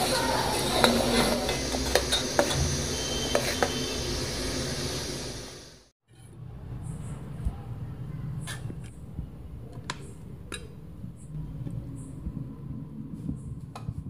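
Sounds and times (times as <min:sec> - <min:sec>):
metal spoon scraping steel plate: 0:00.8 - 0:03.8.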